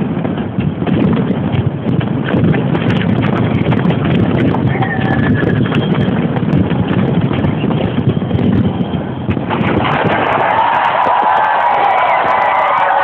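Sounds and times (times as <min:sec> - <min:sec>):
fireworks bangs and crackles: 0:00.0 - 0:13.0
crowd cheering: 0:09.6 - 0:13.0.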